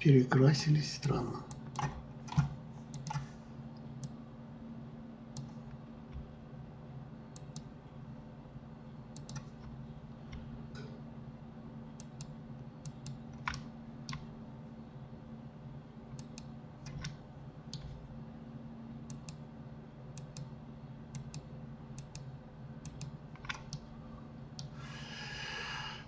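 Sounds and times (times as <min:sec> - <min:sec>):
steady low hum: 0:00.0 - 0:26.0
computer mouse clicks: 0:01.5 - 0:03.3, 0:05.3 - 0:06.3, 0:07.3 - 0:07.7, 0:09.1 - 0:10.5, 0:12.0 - 0:14.3, 0:16.2 - 0:18.0, 0:19.0 - 0:19.4, 0:20.2 - 0:20.5, 0:21.1 - 0:23.9
keyboard clicks: 0:09.1 - 0:10.5, 0:16.2 - 0:18.0.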